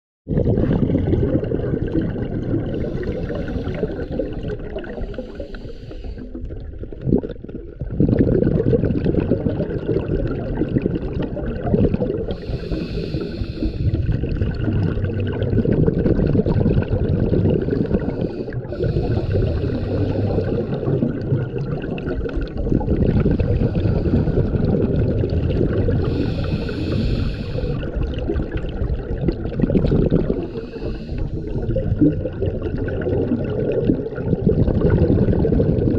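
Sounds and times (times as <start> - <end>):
gurgling exhaled bubbles: 0.3 - 35.9
hiss of inhaled air: 2.8 - 6.3, 12.3 - 14.1, 17.7 - 20.9, 26.0 - 27.8, 30.4 - 31.5.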